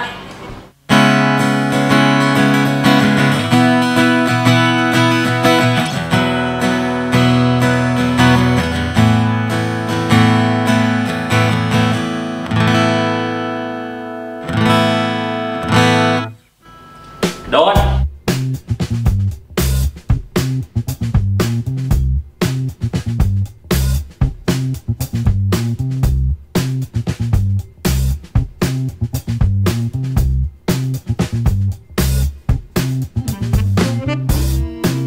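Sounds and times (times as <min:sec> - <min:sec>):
acoustic guitar strummed chords: 0:00.9 - 0:18.5, 0:32.8 - 0:35.0.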